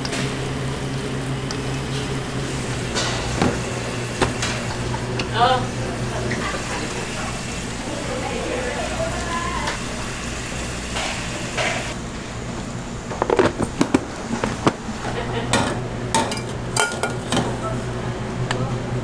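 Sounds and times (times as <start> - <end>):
steady low hum: 0.0 - 19.0
metal kettles clattering on counter: 15.5 - 17.5.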